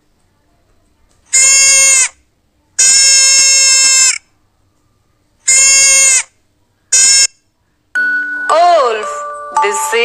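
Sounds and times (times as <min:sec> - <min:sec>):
deer bleating: 0:05.5 - 0:06.3.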